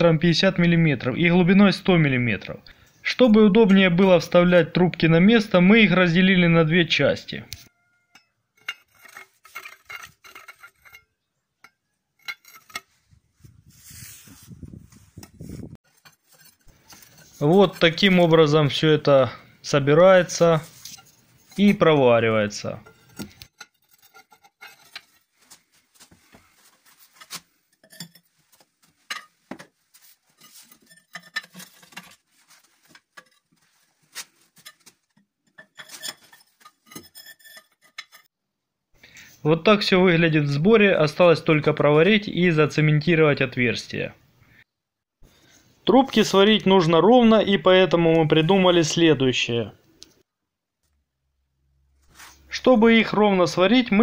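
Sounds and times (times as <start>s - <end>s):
steel pipe clinking and knocking: 8.1s - 13.0s, 22.6s - 25.2s, 27.7s - 28.4s, 29.0s - 29.7s, 30.4s - 32.2s, 34.6s - 38.3s.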